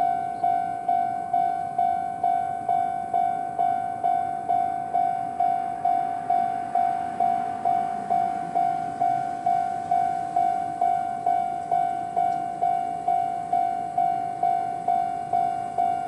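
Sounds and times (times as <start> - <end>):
level-crossing alarm bell: 0.0 - 16.0.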